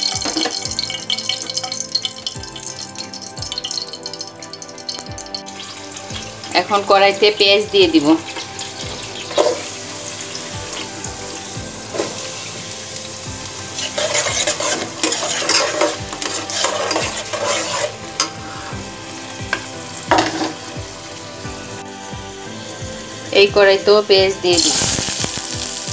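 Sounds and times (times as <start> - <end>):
onions sizzling in hot oil: 0.0 - 25.9
spatula scraping pot: 13.7 - 18.8.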